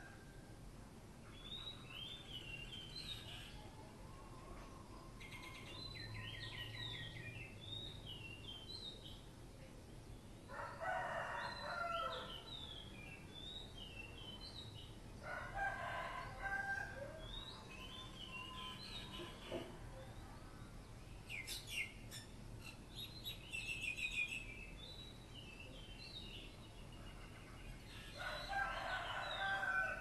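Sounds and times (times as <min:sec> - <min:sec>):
rooster crowing: 0:10.5 - 0:12.4, 0:15.2 - 0:17.3, 0:28.2 - 0:30.0
small birds chirping: 0:17.2 - 0:29.7.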